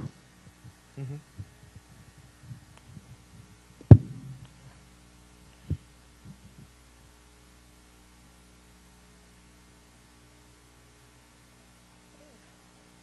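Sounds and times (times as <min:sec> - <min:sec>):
electrical mains hum: 0:00.0 - 0:13.0
low thump: 0:03.9 - 0:04.4.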